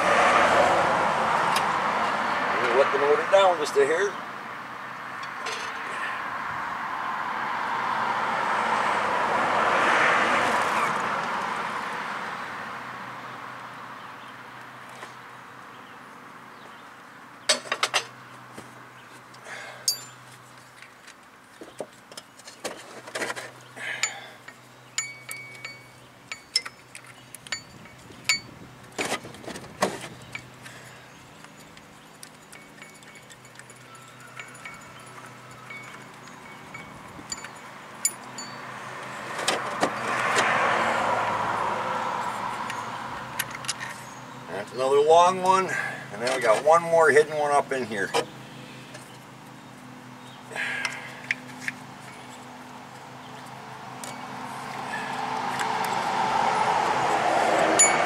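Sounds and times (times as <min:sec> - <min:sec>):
metallic tool clinks: 0:19.9 - 0:20.2, 0:25.0 - 0:26.9, 0:32.3 - 0:38.6.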